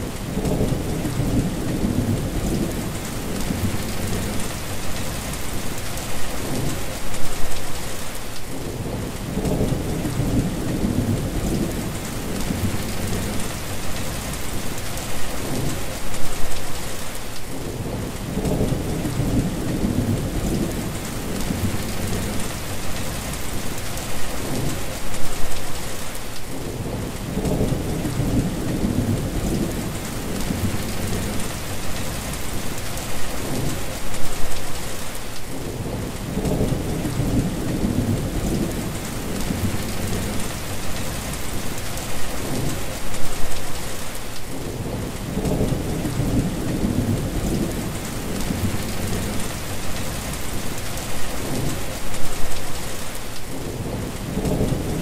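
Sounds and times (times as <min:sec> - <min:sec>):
heavy rain on a wet road: 0:00.0 - 0:55.0
low thunder rumbling: 0:00.2 - 0:05.4, 0:08.6 - 0:14.7, 0:17.6 - 0:23.4, 0:26.6 - 0:32.4, 0:35.6 - 0:41.6, 0:44.6 - 0:50.7, 0:53.6 - 0:55.0.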